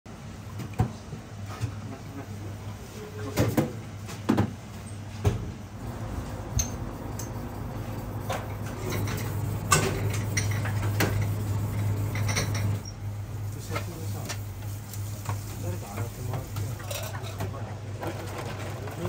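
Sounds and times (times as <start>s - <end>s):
steady low hum: 5.7s - 16.6s
dishes and utensils clinking: 8.7s - 11.3s, 12.1s - 12.8s.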